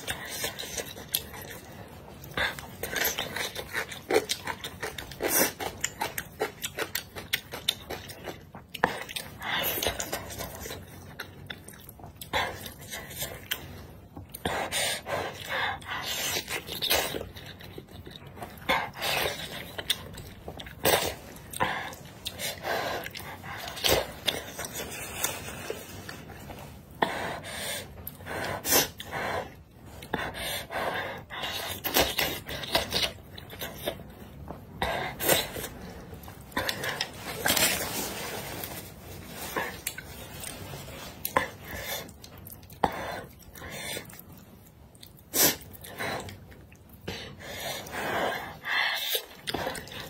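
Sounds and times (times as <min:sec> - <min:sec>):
person chewing: 0:00.0 - 0:50.0
noisy breaths: 0:21.5 - 0:32.0, 0:47.1 - 0:50.0.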